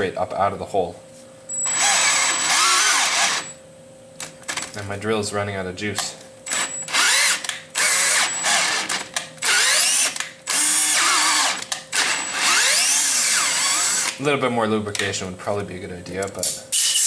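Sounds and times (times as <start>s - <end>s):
cordless drill motor whining: 1.5s - 3.6s, 6.5s - 14.2s.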